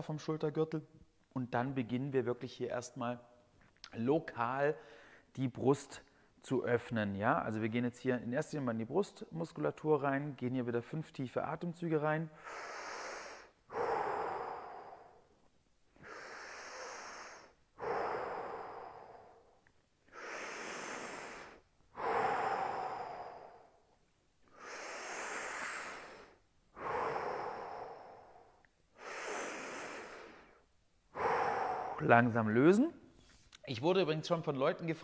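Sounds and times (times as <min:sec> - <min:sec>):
man breathing deeply: 0:04.8 - 0:05.3, 0:12.3 - 0:32.5.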